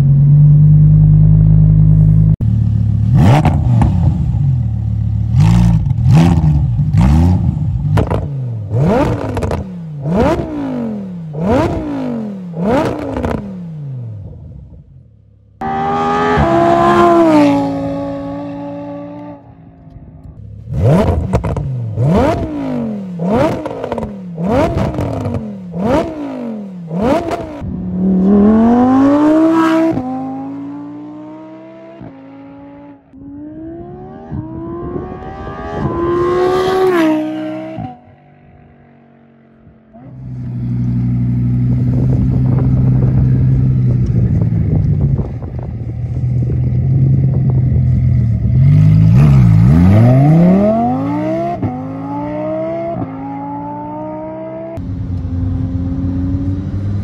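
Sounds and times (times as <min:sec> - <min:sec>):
sports car engine revving: 0:00.1 - 0:14.4, 0:15.6 - 0:57.0
car accelerating through gears: 0:20.7 - 0:38.0, 0:48.6 - 0:57.0.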